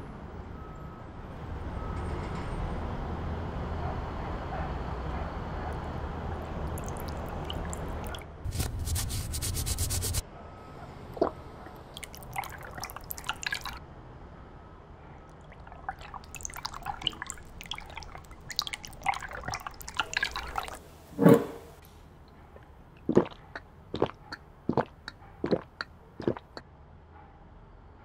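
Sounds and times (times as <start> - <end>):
liquid dripping: 6.4 - 8.4, 11.2 - 13.8, 15.3 - 20.8, 23.0 - 26.6.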